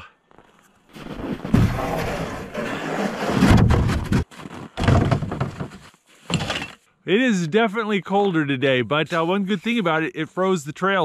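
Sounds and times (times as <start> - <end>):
plastic sled scraping on snow: 0.9 - 6.0.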